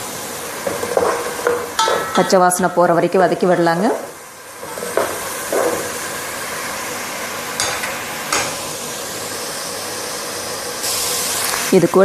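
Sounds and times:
paste sizzling in hot oil: 0.0 - 11.9
spoon scraping and knocking pot: 0.6 - 2.4, 4.6 - 5.9.

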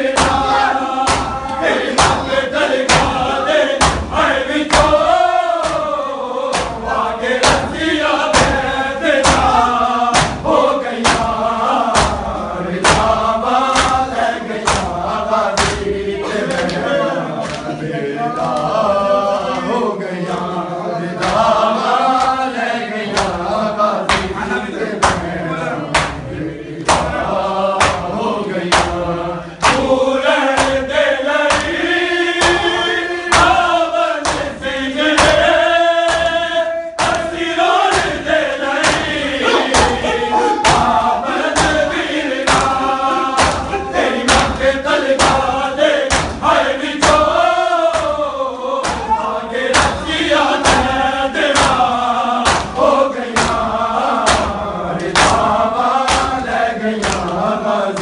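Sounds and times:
male voices chanting a lament: 0.0 - 58.0
hands slapping bare chests: 0.2 - 2.3, 2.9 - 6.8, 7.4 - 15.9, 24.0 - 24.4, 25.0 - 25.3, 25.9 - 26.2, 26.8 - 27.2, 27.8 - 29.0, 29.6 - 34.6, 35.2 - 36.4, 37.0 - 40.0, 40.6 - 49.1, 49.7 - 53.6, 54.2 - 57.4.

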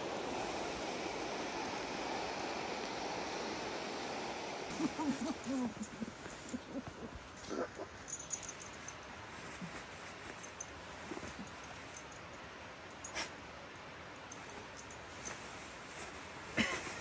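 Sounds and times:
river water rushing: 0.0 - 17.0
wavering low calls: 4.7 - 8.9.

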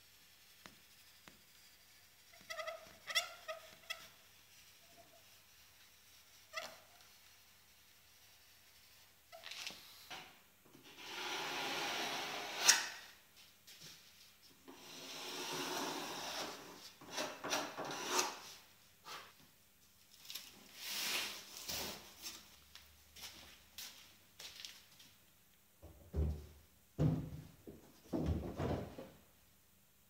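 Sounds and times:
hand tool scraping plywood: 10.8 - 12.9, 14.7 - 18.5.

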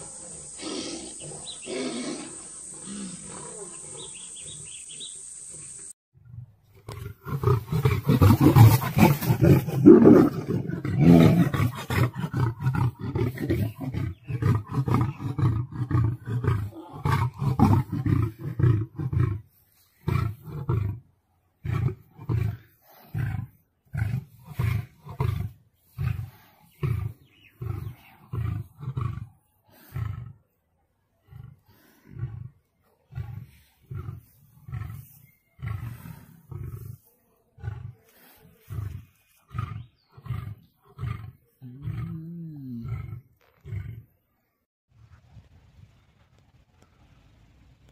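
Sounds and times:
lion grunting roars: 0.0 - 5.0, 6.9 - 19.4, 21.6 - 30.5, 31.2 - 37.0, 37.6 - 44.1
lion roaring: 6.9 - 19.4, 37.6 - 44.1.

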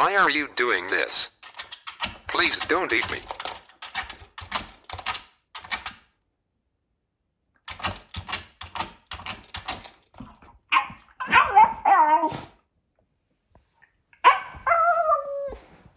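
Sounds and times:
dog whining: 10.7 - 12.6, 14.2 - 15.9.

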